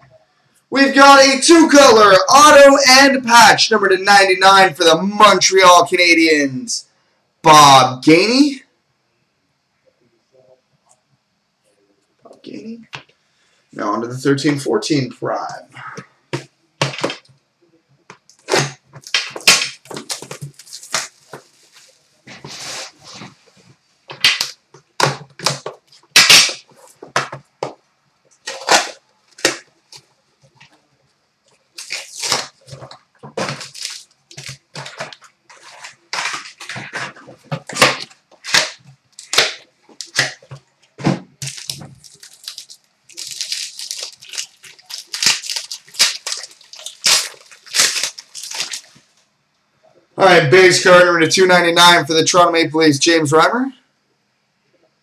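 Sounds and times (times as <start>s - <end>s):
packaging crinkling and tearing: 18.3s - 22.2s, 28.3s - 30.8s, 31.5s - 40.6s, 41.4s - 49.2s
scissors cutting foil pack: 41.5s - 48.9s.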